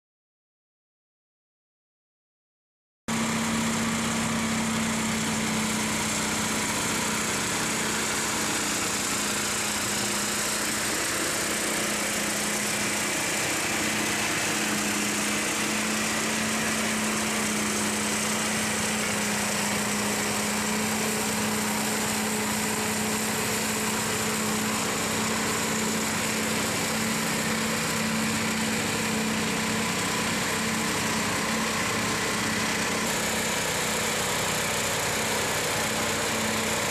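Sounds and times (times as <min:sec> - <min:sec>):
flail rotor cutting grass: 0:03.1 - 0:36.9
petrol engine running steadily: 0:03.1 - 0:36.9.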